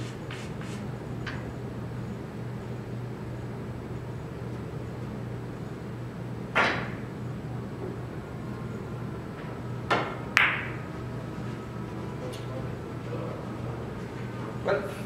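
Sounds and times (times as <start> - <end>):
steady low hum: 0.0 - 15.0
cue tip striking ball: 6.5 - 7.1, 9.4 - 10.9.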